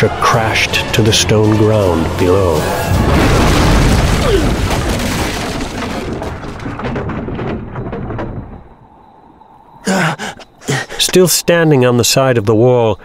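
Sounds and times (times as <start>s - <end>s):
wooden balcony crashing onto stone: 2.9s - 8.8s
wood pieces clattering: 3.0s - 8.8s.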